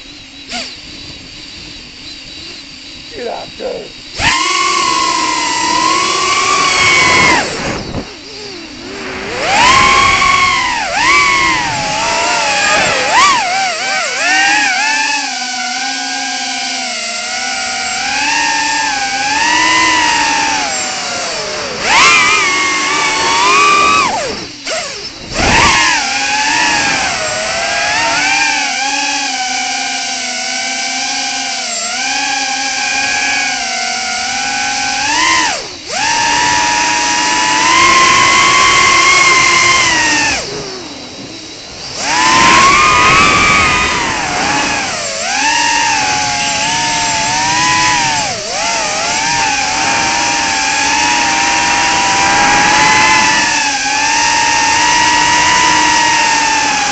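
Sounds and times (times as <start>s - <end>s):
drone motors whining: 0.0s - 56.9s.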